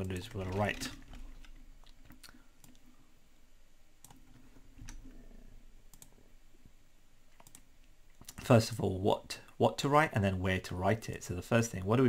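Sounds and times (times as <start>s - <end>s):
faint computer mouse clicks: 5.9s - 6.1s, 7.4s - 7.6s.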